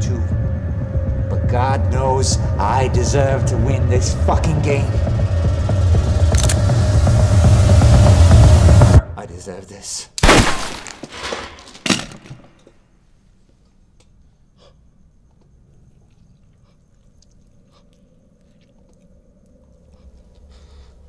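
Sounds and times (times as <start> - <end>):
sharp hit: 0.8 - 9.0.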